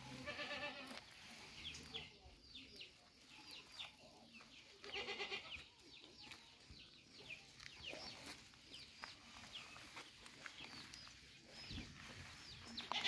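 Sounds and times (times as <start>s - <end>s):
goat bleating: 0.0s - 1.1s, 4.8s - 5.6s
small birds chirping: 0.0s - 13.0s.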